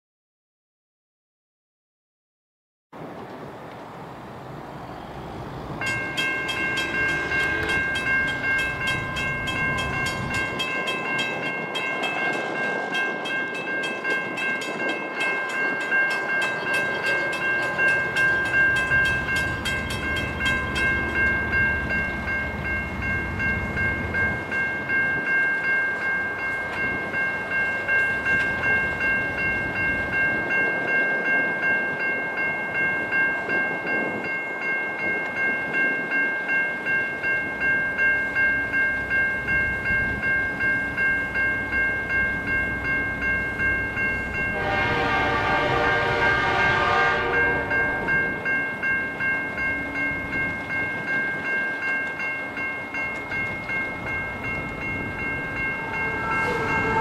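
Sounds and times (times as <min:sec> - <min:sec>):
electronic warning bell ringing: 0:05.8 - 0:34.1, 0:46.8 - 0:57.0.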